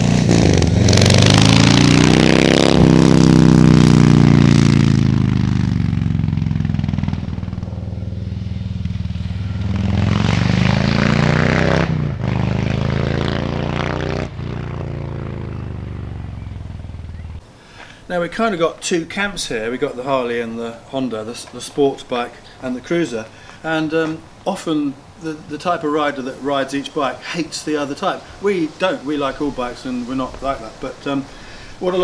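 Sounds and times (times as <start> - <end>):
motorcycle engine riding by: 0.0 - 17.4.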